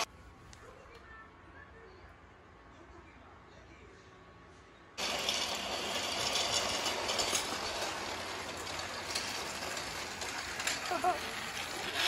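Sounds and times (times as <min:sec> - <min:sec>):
toy train clattering on track: 0:05.0 - 0:12.0.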